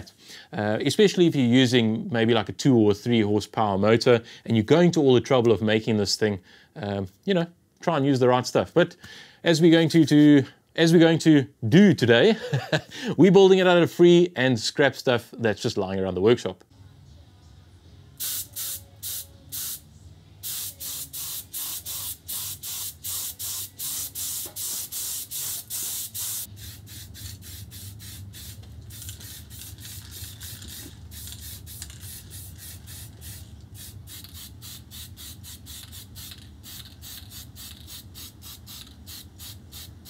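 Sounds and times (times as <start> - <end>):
low steady hum: 16.6 - 18.2
spray paint hissing in bursts: 18.2 - 19.8, 20.4 - 40.0.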